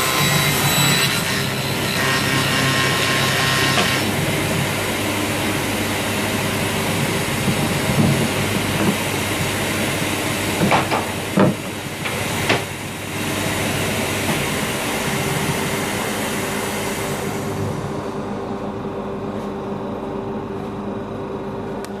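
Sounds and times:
table saw humming: 0.0s - 18.5s.

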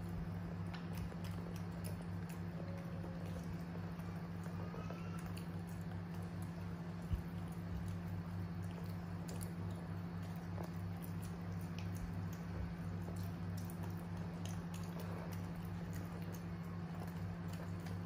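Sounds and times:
fingers squelching soft food: 0.0s - 18.0s
light scattered ticks: 0.0s - 18.0s
steady low hum: 0.0s - 18.0s.

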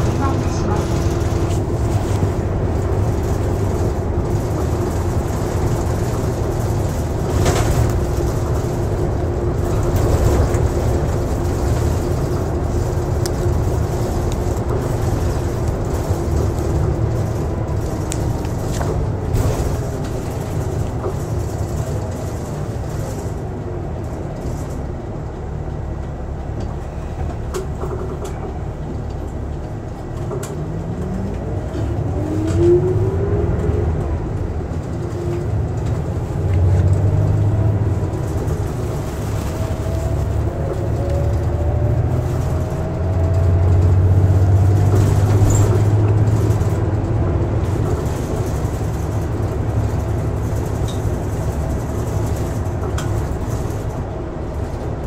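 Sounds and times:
bus engine drone: 0.0s - 55.0s
rising engine whines: 30.6s - 34.0s.

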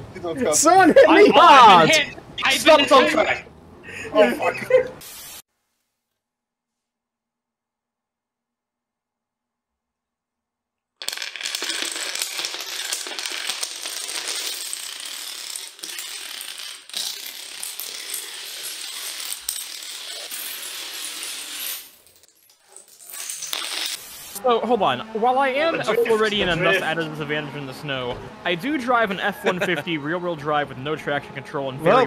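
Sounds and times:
dominoes toppling clatter: 11.0s - 24.3s.

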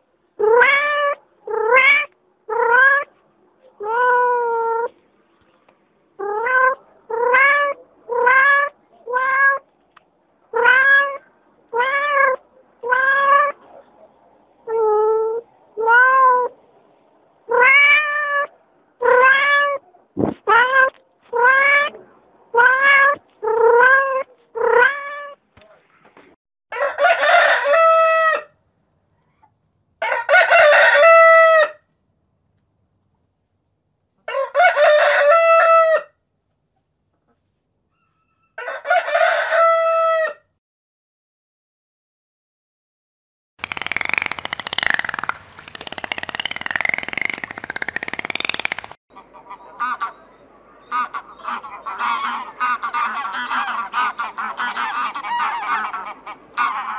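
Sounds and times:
cat meowing: 0.4s - 3.1s, 6.2s - 9.6s, 10.5s - 13.6s, 14.7s - 16.5s, 17.5s - 19.8s, 20.5s - 25.4s
rooster crowing: 26.7s - 28.6s, 30.0s - 31.8s, 34.3s - 36.2s, 38.0s - 40.5s.

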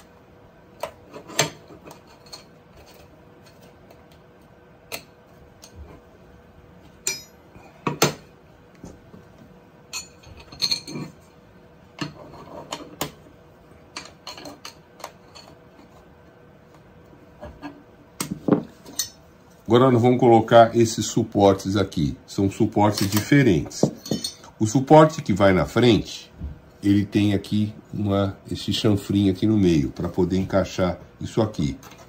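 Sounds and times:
metal parts clicking and clinking: 7.0s - 7.4s, 9.9s - 11.1s, 23.0s - 24.5s.

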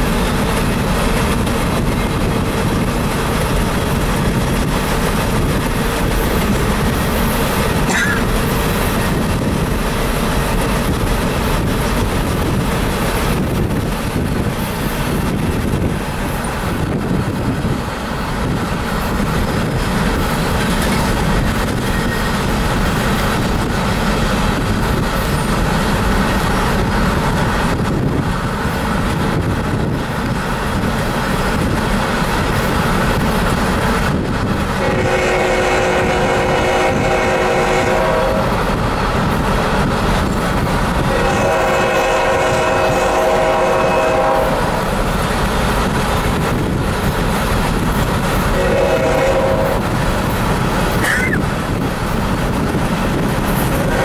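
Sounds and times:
diesel locomotives rumbling past: 0.0s - 54.0s
locomotive horn blasts: 34.8s - 38.7s, 41.0s - 44.9s, 48.5s - 50.0s, 53.7s - 54.0s.

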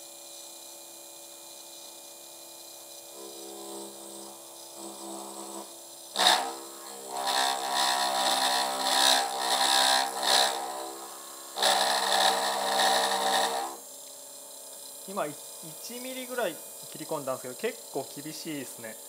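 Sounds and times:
milling spindle running: 2.8s - 19.0s
end mill cutting metal: 3.2s - 13.8s.

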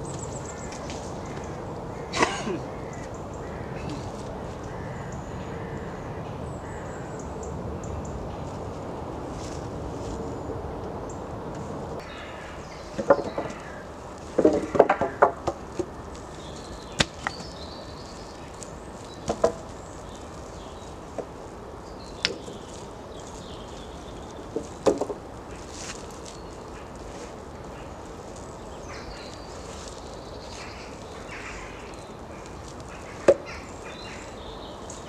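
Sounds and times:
wooden logs knocking together: 12.9s - 15.9s, 16.9s - 17.6s, 19.2s - 19.8s, 22.2s - 22.6s, 24.4s - 25.3s.

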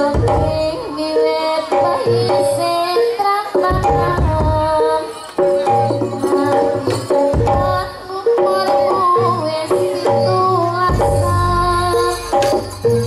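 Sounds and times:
hand drums beating: 0.0s - 2.9s, 3.5s - 13.0s
metallophone notes: 0.0s - 13.0s.

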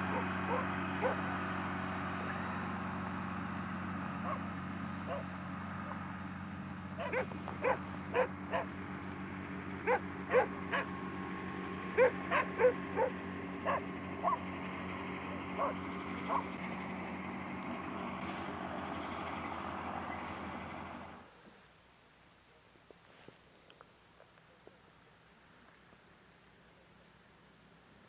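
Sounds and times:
dogs barking: 0.0s - 1.3s, 4.2s - 6.0s, 7.0s - 8.8s, 9.8s - 11.0s, 11.9s - 14.6s, 15.2s - 16.6s
hovercraft engine drone: 0.0s - 21.3s.

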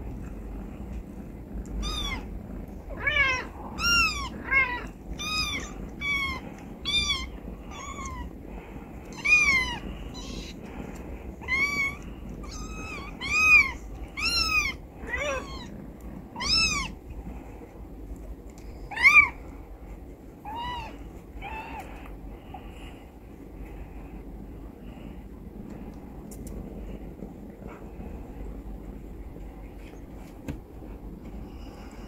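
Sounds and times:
kittens mewing: 1.5s - 17.1s, 18.9s - 19.4s, 20.4s - 22.1s.

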